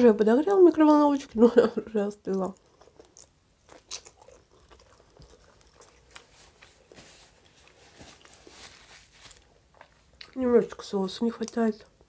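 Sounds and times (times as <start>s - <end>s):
person chewing pizza: 2.3s - 8.7s, 9.3s - 10.4s.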